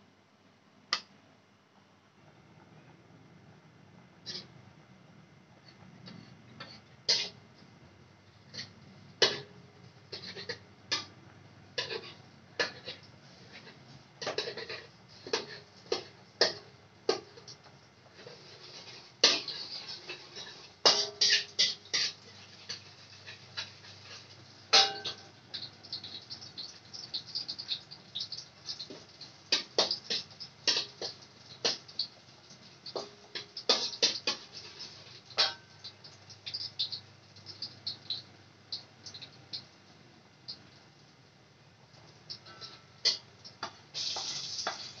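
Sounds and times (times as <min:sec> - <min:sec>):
faint low hum: 0:00.0 - 0:20.9
water boiling with bubbles popping: 0:02.2 - 0:45.0.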